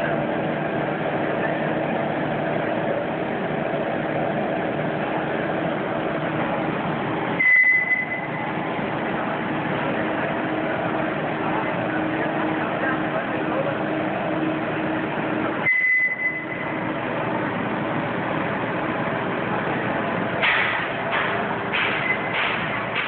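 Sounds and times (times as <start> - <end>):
brief high tone: 7.4 - 8.4.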